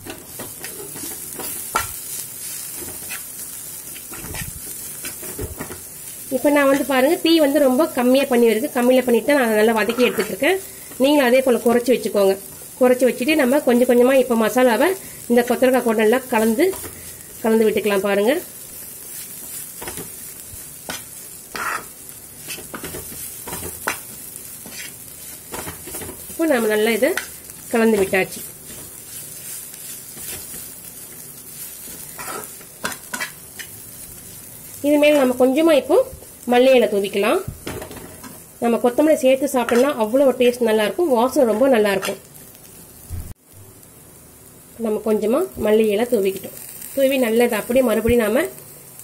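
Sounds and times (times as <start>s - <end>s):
food sizzling in oil: 0.0s - 49.0s
spatula scraping frying pan: 0.3s - 5.9s, 9.7s - 11.0s, 18.8s - 34.0s
metal spatula scraping a pan: 2.6s - 3.3s, 9.8s - 10.4s, 20.8s - 26.2s, 31.8s - 33.8s.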